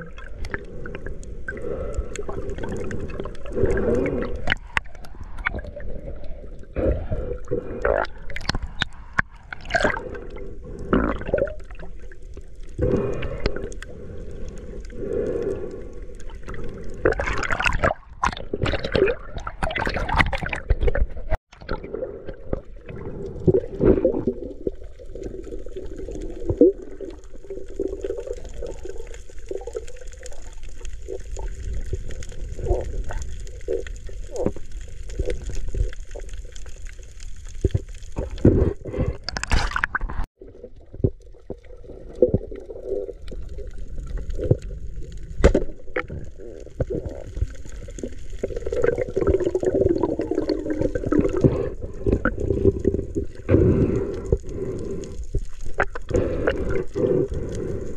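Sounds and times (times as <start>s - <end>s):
muffled underwater gurgling: 38.2s - 55.1s, 55.7s - 57.9s.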